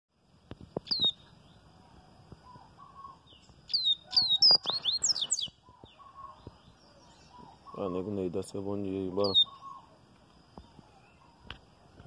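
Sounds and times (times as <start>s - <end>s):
bird singing whistled notes: 0.8s - 1.6s, 2.4s - 10.0s.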